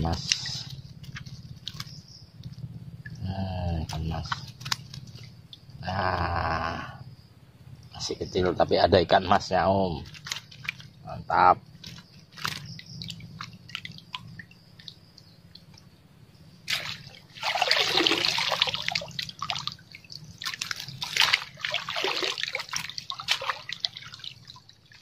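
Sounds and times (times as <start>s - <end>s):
water splashing and sloshing: 0.0s - 6.0s, 9.4s - 25.0s.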